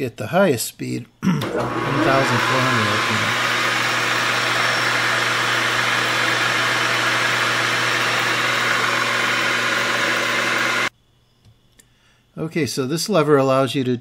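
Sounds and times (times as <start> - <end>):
lathe machine whir: 1.4 - 10.9.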